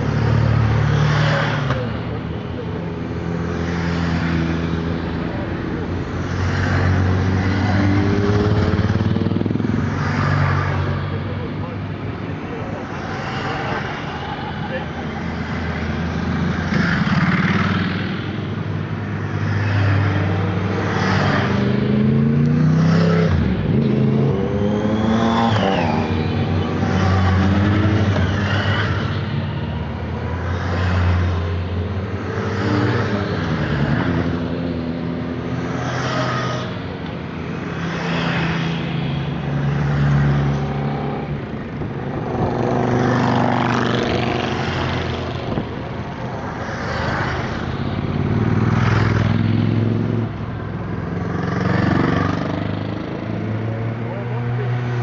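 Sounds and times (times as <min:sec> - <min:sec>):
motorcycles riding past: 0:19.1 - 0:55.0.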